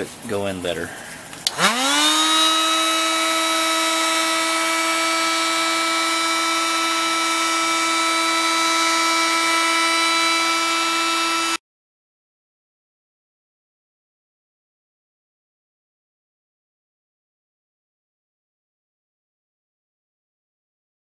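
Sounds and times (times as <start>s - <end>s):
heat gun fan whining: 1.3s - 11.6s.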